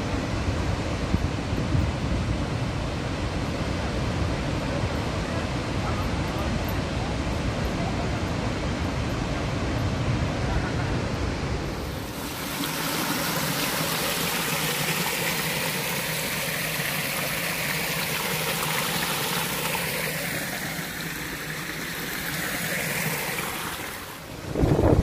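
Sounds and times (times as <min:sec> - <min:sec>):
stream running over rock: 0:11.6 - 0:25.0
water splashing down cascade: 0:11.6 - 0:25.0.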